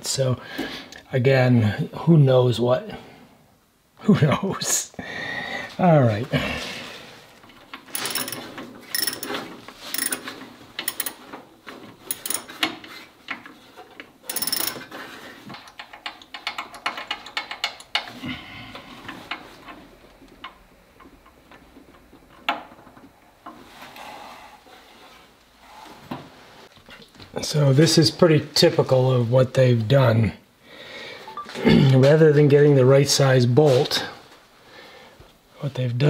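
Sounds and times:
ratchet wrench clicking: 7.9 - 11.2, 12.1 - 12.6, 14.3 - 14.8.

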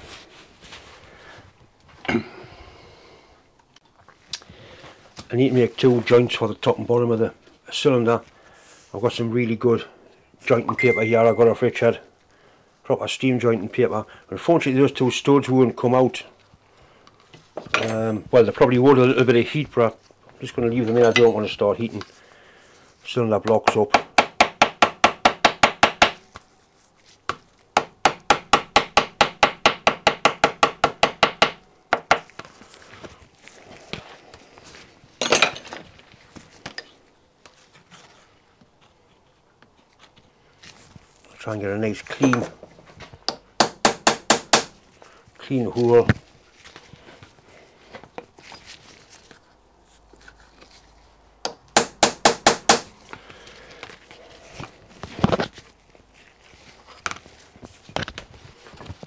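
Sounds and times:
paper rustling: 45.8 - 51.2.

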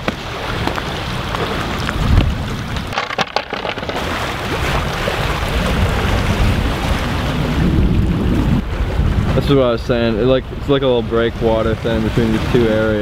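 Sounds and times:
water washing against rocky shore: 0.0 - 9.7
wind buffeting microphone: 0.0 - 13.0.

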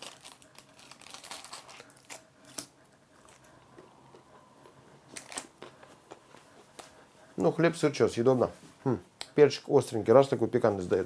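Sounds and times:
toasted sandwich crunching: 0.0 - 3.8.

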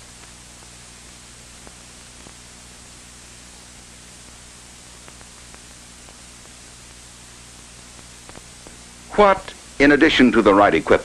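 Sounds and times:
film soundtrack hiss: 0.0 - 11.0
faint clicks: 5.0 - 7.0, 7.8 - 8.8.

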